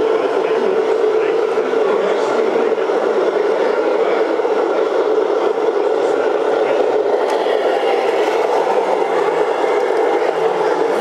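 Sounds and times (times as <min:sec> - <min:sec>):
model truck motor whirring: 0:07.2 - 0:11.0.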